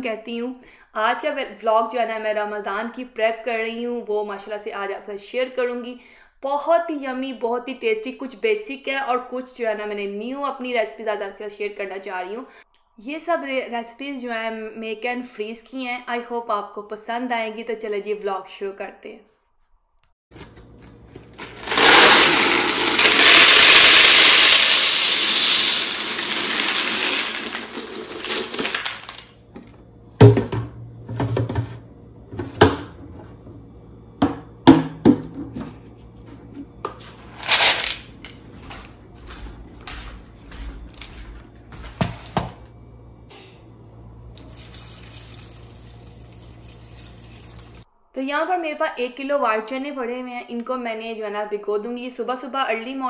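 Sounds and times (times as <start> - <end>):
chickpeas poured into plastic bowl: 21.4 - 29.2, 37.4 - 38.0, 44.4 - 47.8
water pouring: 21.6 - 28.6, 44.4 - 47.8.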